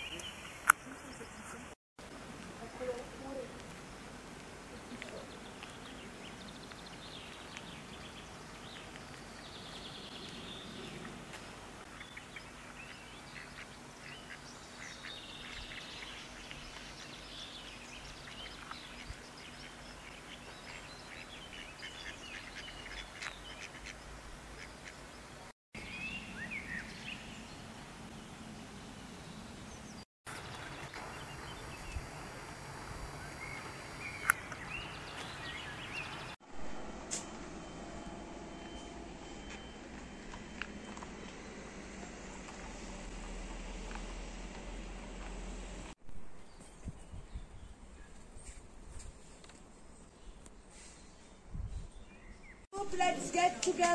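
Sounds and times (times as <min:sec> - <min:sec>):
birds calling: 0:00.0 - 0:01.8, 0:02.6 - 0:36.4
ducks quacking: 0:11.9 - 0:16.9, 0:18.3 - 0:25.1.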